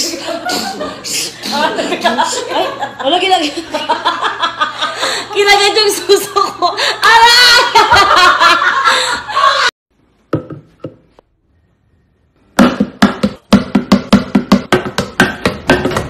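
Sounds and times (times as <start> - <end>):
woman laughing: 0.0 - 5.3, 6.7 - 9.7
fast percussive knocking beat: 12.6 - 16.0.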